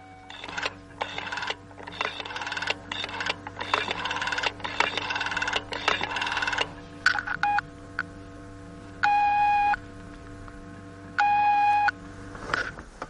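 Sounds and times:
telephone ringing tone beeps: 0:00.0 - 0:06.6, 0:11.2 - 0:11.9
telephone line clicks: 0:00.3 - 0:07.6.

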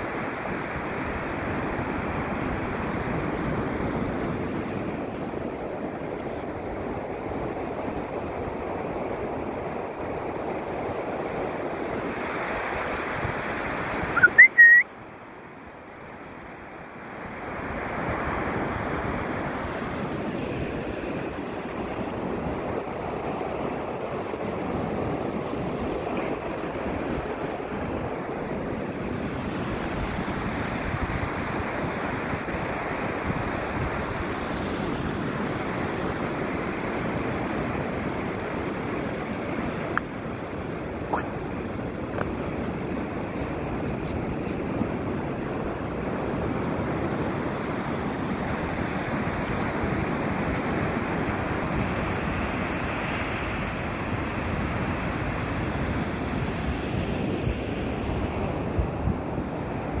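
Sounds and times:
surf washing on beach: 0:00.0 - 1:00.0
high-pitched rising chirps: 0:14.2 - 0:14.8
wind on microphone: 0:17.6 - 1:00.0.

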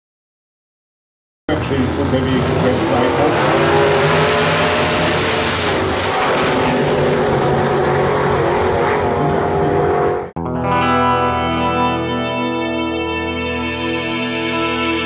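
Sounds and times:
turbocharged engine running hard: 0:01.5 - 0:10.3
wind and road noise: 0:01.5 - 0:10.3
guitar music: 0:01.6 - 0:05.8, 0:10.3 - 0:15.0.

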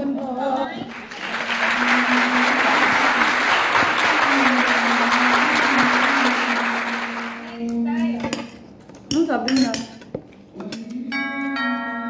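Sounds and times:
applause: 0:00.9 - 0:07.7.

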